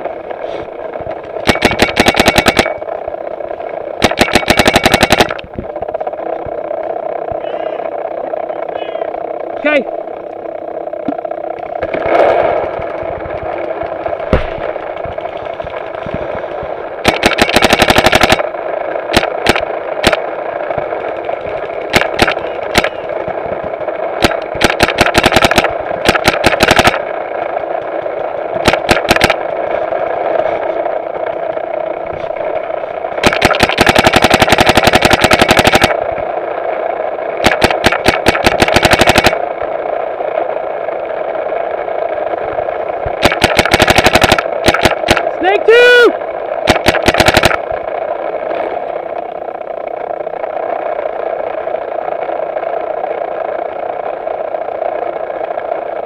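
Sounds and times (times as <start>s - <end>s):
steady background noise: 0.0s - 56.0s
paintball markers firing: 1.4s - 2.8s, 4.0s - 5.5s, 13.6s - 18.5s, 19.1s - 20.9s, 21.5s - 23.4s, 24.1s - 27.1s, 28.6s - 29.4s, 33.2s - 36.0s, 37.4s - 39.4s, 43.2s - 45.4s, 46.6s - 47.7s.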